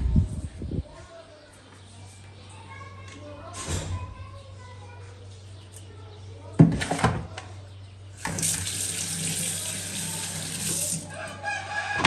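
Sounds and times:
tap running water into sink: 8.2 - 11.1.

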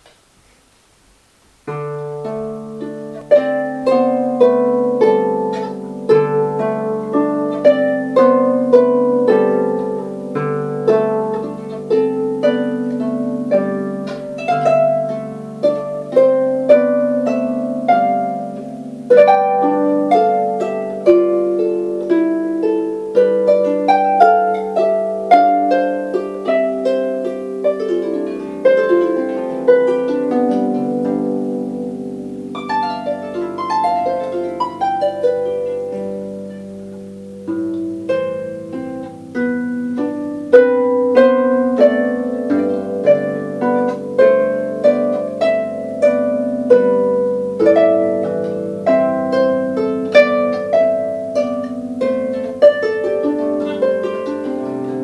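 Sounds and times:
solo harp playing: 1.6 - 55.0.

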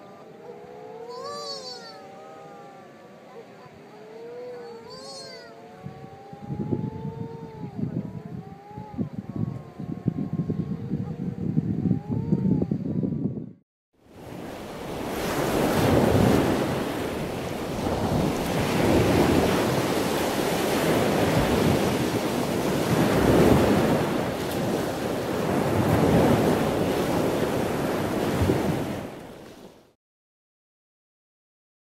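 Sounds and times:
wind on microphone: 3.6 - 29.8
ocean surf: 14.1 - 30.0.

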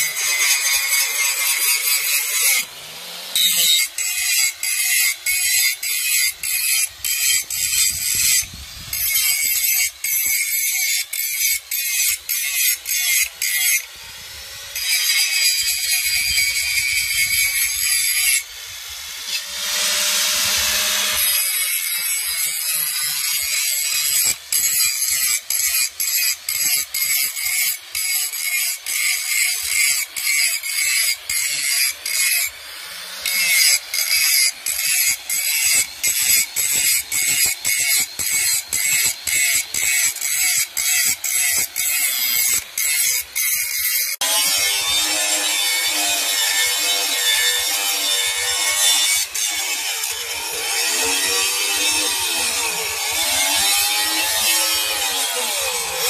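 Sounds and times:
angle grinder grinding steel: 0.0 - 56.0.

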